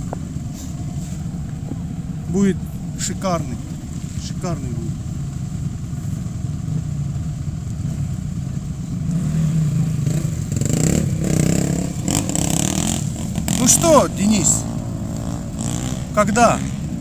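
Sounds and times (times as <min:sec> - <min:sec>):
engine revving: 0:00.0 - 0:17.0
engines idling: 0:00.0 - 0:17.0.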